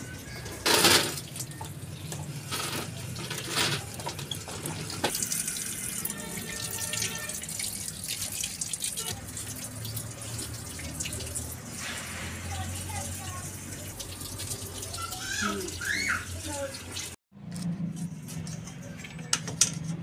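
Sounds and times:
tap water splashing: 0:03.8 - 0:12.0.

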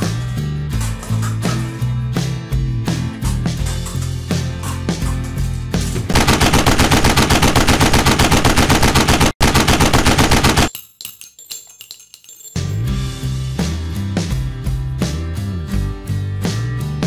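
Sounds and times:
rapid automatic gunfire: 0:06.1 - 0:10.7.

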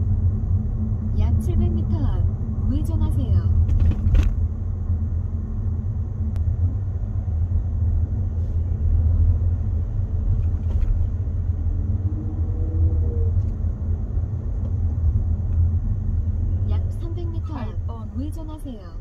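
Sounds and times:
road and engine rumble in car: 0:00.0 - 0:19.0.

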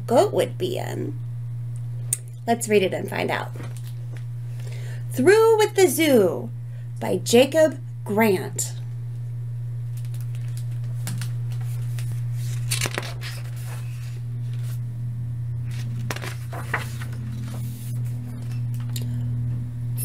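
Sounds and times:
steady low hum: 0:00.0 - 0:20.0
book pages turning: 0:09.9 - 0:14.8, 0:15.7 - 0:18.9.

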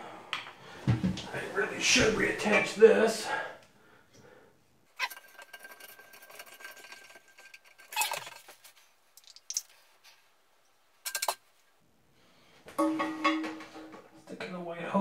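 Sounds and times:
plastic parts clattering: 0:05.0 - 0:09.9, 0:11.0 - 0:11.4
plastic parts clinking and rattling: 0:05.0 - 0:09.9, 0:11.0 - 0:11.4.

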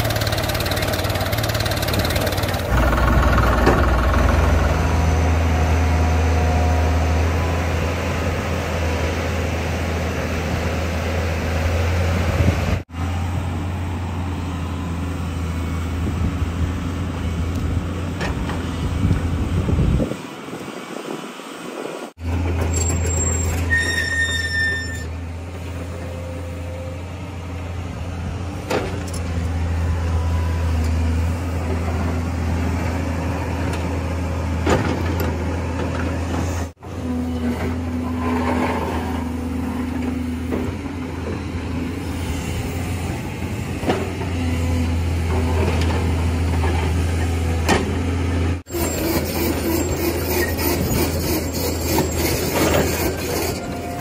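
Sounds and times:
engine low drone: 0:00.0 - 0:20.4.

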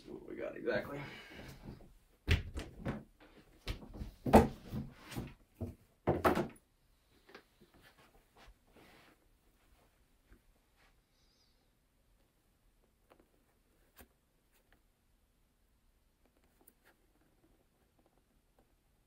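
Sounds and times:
sharp knocks and thumps: 0:02.3 - 0:06.6.

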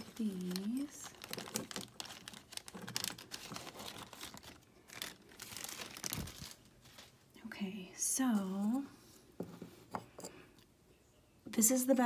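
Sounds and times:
plastic bag crinkling and rustling: 0:00.0 - 0:07.3.

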